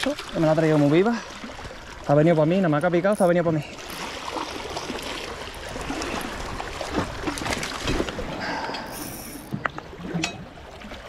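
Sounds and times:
sea water rushing: 0.0 - 11.0
short splashes or knocks: 3.8 - 8.3.

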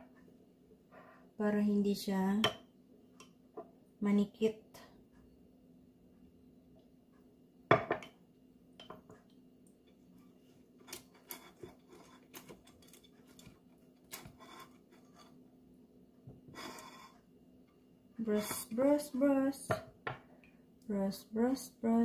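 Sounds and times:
faint steady hum: 0.0 - 22.0
containers and utensils clinking: 10.8 - 15.3.

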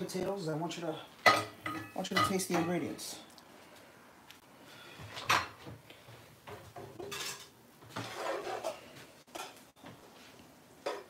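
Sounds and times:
metal spoon scraping a skillet: 7.0 - 9.6.

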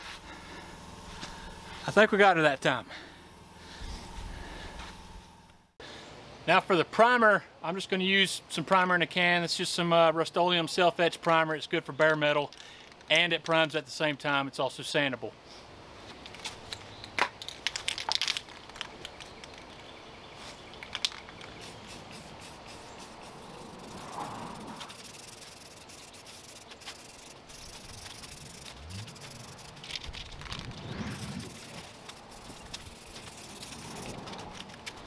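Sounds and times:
aerosol can rattling: 20.8 - 35.0
aerosol spray hissing: 21.6 - 29.9, 30.8 - 34.3.

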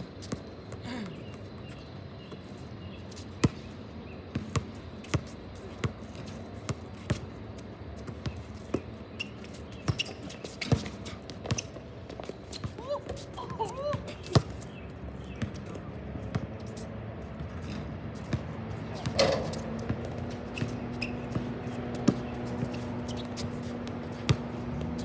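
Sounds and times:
basketball bouncing on hard court: 17.4 - 25.0.

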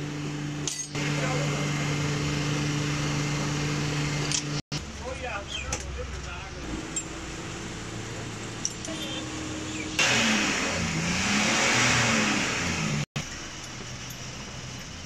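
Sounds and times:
vehicle engine revving: 0.0 - 5.0, 5.9 - 13.3.

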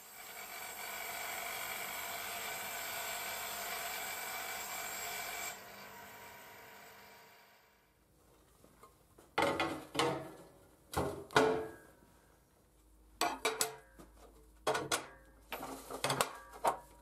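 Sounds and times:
electric motor running: 3.2 - 7.6.

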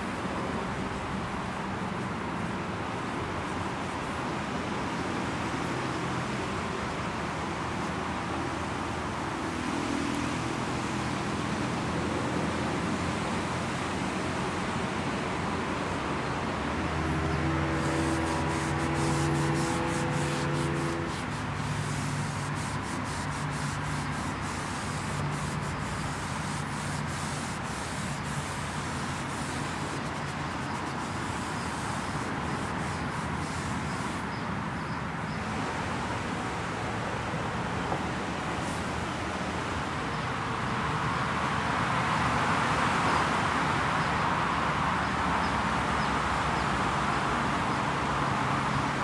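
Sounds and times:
passing vehicle hum: 0.0 - 49.0
traffic noise: 0.0 - 49.0
wipe scrubbing plastic trim: 17.0 - 34.2.

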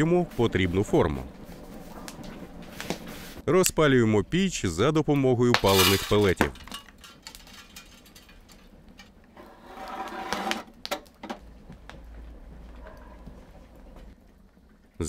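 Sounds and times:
low steady hum: 0.0 - 10.0, 10.6 - 15.0
soft metal scrape: 5.6 - 6.3, 9.4 - 10.6.

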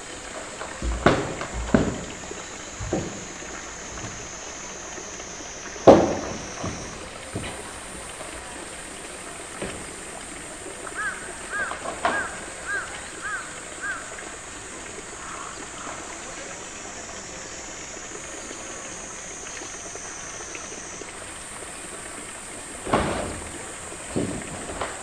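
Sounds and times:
steady high-pitched buzz: 0.0 - 10.7
soft knocks: 0.6 - 4.4, 5.6 - 8.3, 22.8 - 25.0
hollow thud of plastic tank: 0.6 - 5.0, 5.6 - 8.3, 22.8 - 25.0.

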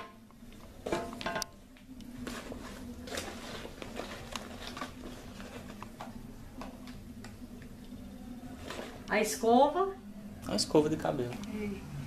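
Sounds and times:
bag and plastic rustling: 2.2 - 5.8, 8.5 - 9.4.

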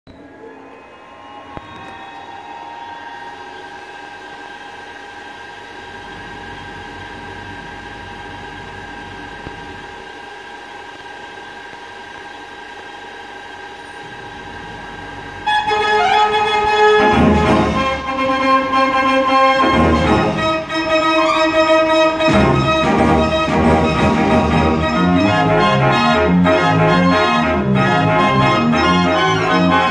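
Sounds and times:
dance organ held chord: 15.4 - 29.9.

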